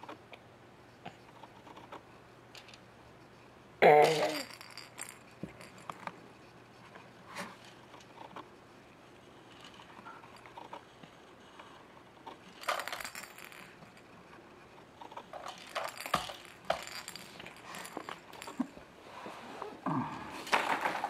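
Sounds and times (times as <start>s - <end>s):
plastic toys clattering: 4.0s - 6.2s, 12.3s - 14.1s, 15.0s - 18.8s, 20.1s - 21.0s.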